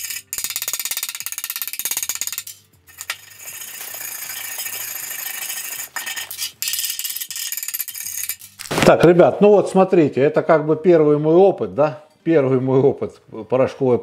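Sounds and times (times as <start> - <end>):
wire brush scrubbing metal: 2.4 - 8.6.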